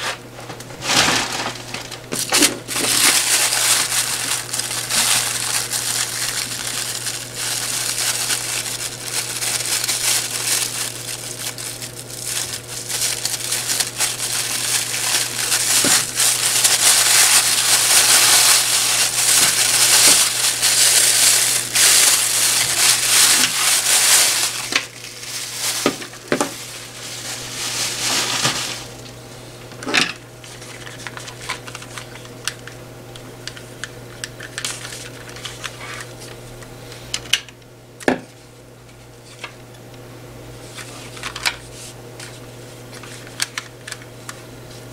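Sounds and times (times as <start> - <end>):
plastic bag crinkling: 0.8 - 29.1, 34.3 - 36.0.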